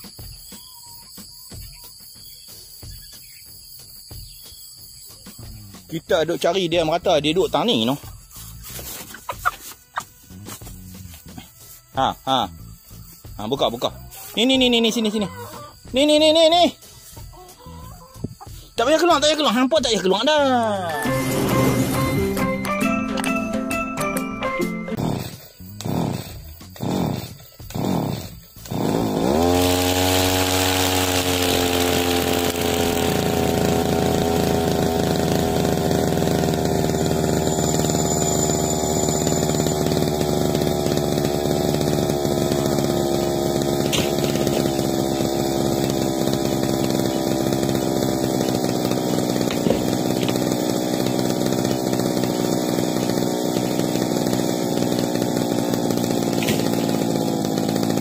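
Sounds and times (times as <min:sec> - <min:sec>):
small petrol engine starting and idling: 0:20.9 - 0:23.0, 0:24.9 - 0:58.0.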